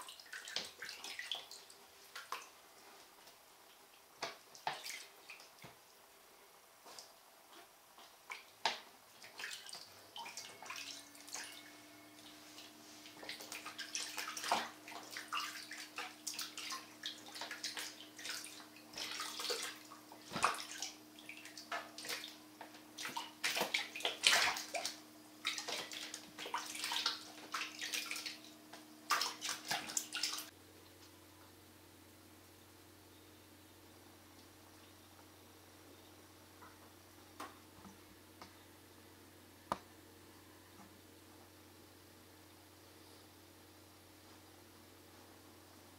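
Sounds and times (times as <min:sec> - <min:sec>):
water splashing in a tub: 0:00.0 - 0:02.6, 0:03.9 - 0:05.9, 0:08.0 - 0:30.6.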